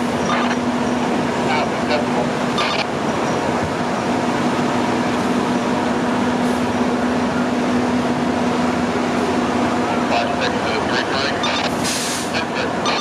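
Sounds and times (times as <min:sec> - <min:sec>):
fire engine idling drone: 0:00.0 - 0:13.0.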